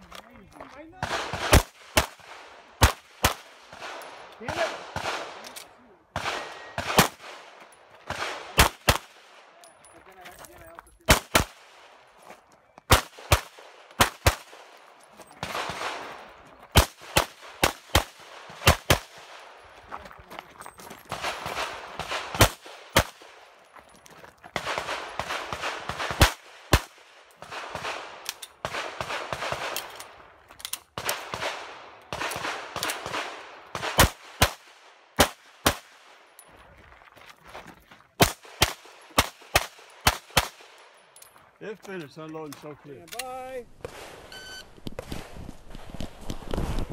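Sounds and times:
pistol shots: 1.0s - 9.5s, 11.1s - 12.0s, 12.9s - 14.8s, 15.4s - 19.6s, 21.1s - 23.5s, 24.6s - 30.2s, 30.9s - 36.2s, 38.2s - 40.8s.

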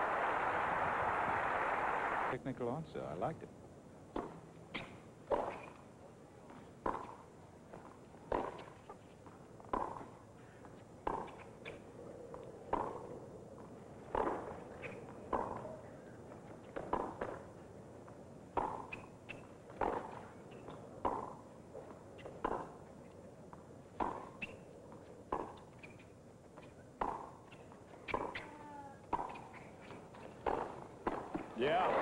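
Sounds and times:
tennis ball struck and bouncing: 4.1s - 5.8s, 6.8s - 7.3s, 8.3s - 8.8s, 9.7s - 10.2s, 11.0s - 11.8s, 12.7s - 13.1s, 14.1s - 15.6s, 18.5s - 21.4s, 22.2s - 22.8s, 23.9s - 24.6s, 25.3s - 26.0s, 27.0s - 28.5s, 29.1s - 29.7s, 30.3s - 31.5s.

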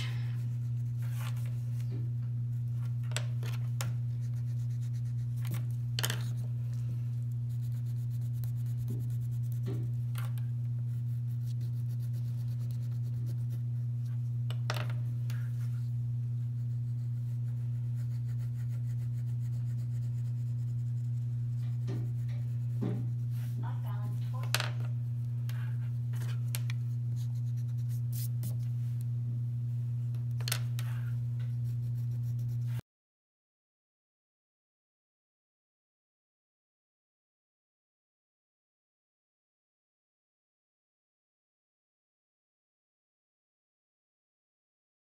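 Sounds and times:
steady low hum: 0.0s - 32.8s
crayon scratching on paper: 4.2s - 6.6s, 7.4s - 13.7s, 16.4s - 23.8s, 25.5s - 28.7s, 30.8s - 32.8s.

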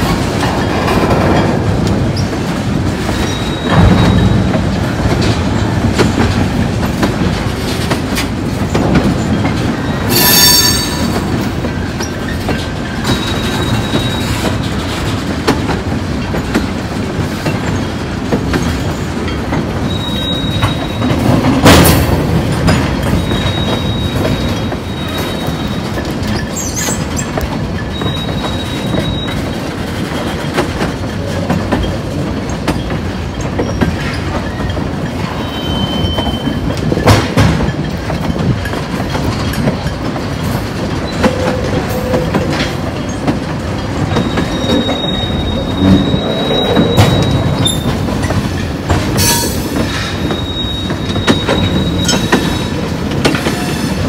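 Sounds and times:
train wheels clacking over rail joints: 0.0s - 54.0s
high-pitched wheel squeal: 35.4s - 36.6s, 44.1s - 48.0s, 50.2s - 52.8s.

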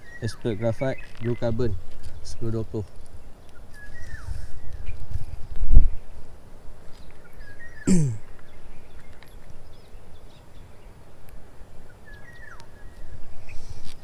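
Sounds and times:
bird chirps: 0.0s - 5.0s, 6.9s - 11.0s, 11.8s - 13.7s
outdoor ambience: 0.0s - 14.0s.

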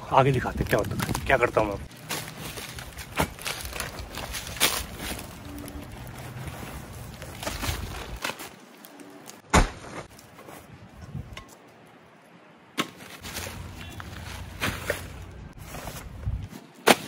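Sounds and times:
items knocking on dry leaves: 0.4s - 8.6s, 12.8s - 16.0s
rustling bags and fabric: 0.5s - 9.4s, 13.2s - 16.8s.

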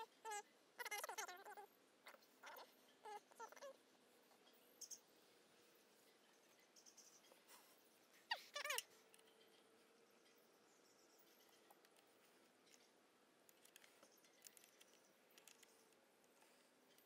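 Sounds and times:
faint high clicks: 11.4s - 17.0s.

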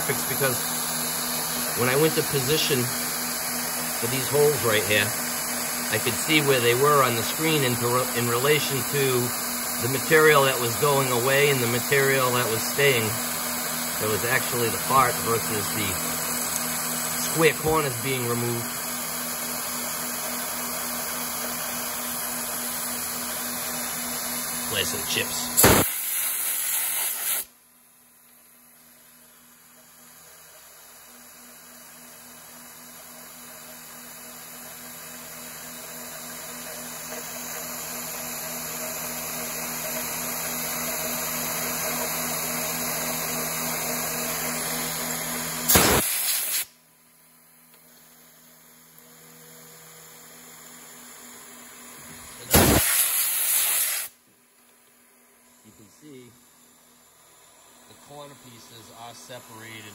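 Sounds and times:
end mill cutting metal: 0.0s - 18.8s
milling machine spindle hum: 0.0s - 27.2s, 31.8s - 46.0s
loud cutting bursts: 0.0s - 27.5s, 37.0s - 46.7s, 52.4s - 54.2s
coolant spray hissing: 45.7s - 46.7s, 52.5s - 54.1s.

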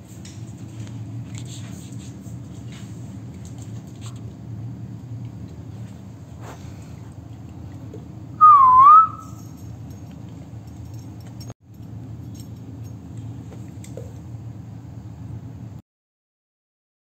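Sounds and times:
steady low hum: 0.0s - 15.8s
person whistling: 8.4s - 9.4s.

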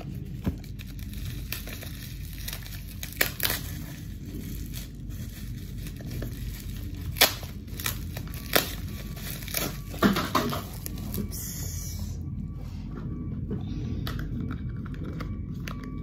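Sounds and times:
plastic packaging crinkling: 0.0s - 11.4s.

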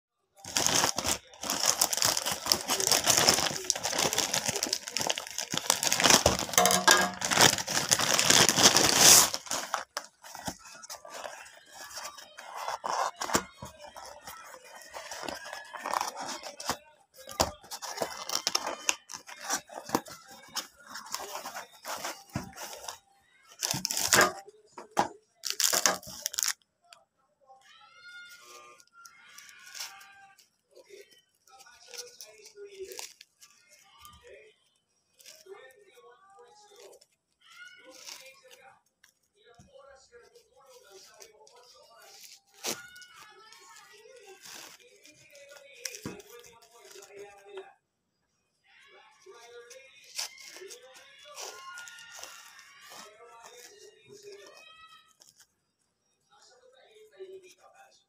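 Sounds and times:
plastic bag tearing and crinkling: 0.4s - 24.4s, 25.0s - 26.6s, 30.9s - 33.5s, 37.8s - 38.6s, 40.7s - 47.4s, 50.0s - 55.4s
cardboard and paper rustling: 0.4s - 26.6s, 29.3s - 34.4s, 37.8s - 38.7s, 40.2s - 47.6s, 49.6s - 55.5s.

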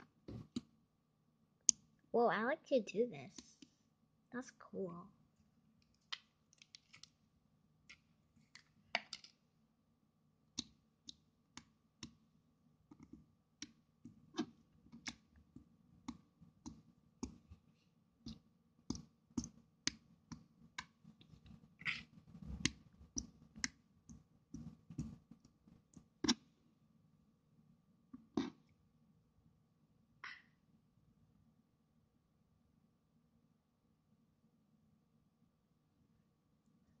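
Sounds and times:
fingers pressing soft slime: 12.9s - 26.5s.

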